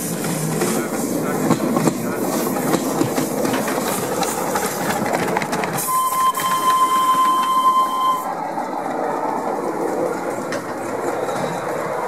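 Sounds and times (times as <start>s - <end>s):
miniature train clicking rattle: 0.0s - 7.9s, 8.6s - 12.0s
high steam whistle: 5.8s - 8.4s.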